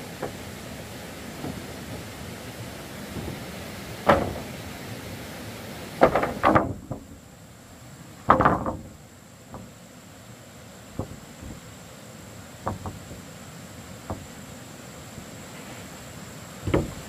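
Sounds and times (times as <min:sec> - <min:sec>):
wooden planks knocking: 0:03.0 - 0:04.7, 0:06.0 - 0:07.1, 0:08.2 - 0:09.7, 0:10.9 - 0:11.6, 0:12.6 - 0:13.2, 0:14.0 - 0:14.4, 0:16.6 - 0:17.0.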